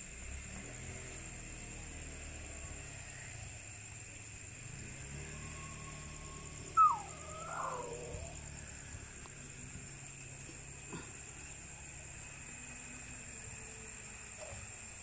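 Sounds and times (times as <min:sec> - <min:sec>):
steady hiss: 0:00.0 - 0:15.0
faint thin whistle: 0:05.5 - 0:08.3
animal call sliding down: 0:06.8 - 0:08.3.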